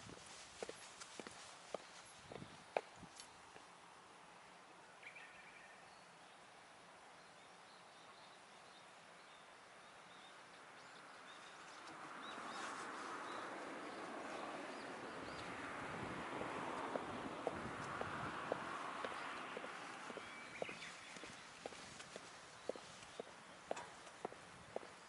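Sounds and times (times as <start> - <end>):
small birds chirping: 7.2 - 25.0.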